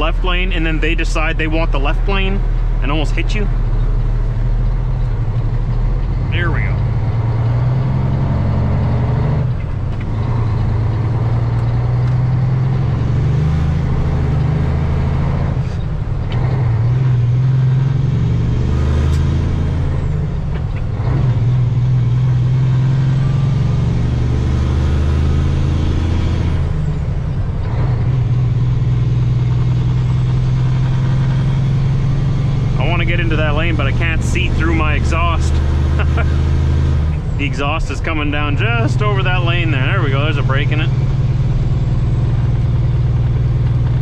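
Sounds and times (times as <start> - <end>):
truck diesel engine accelerating: 0.0 - 44.0.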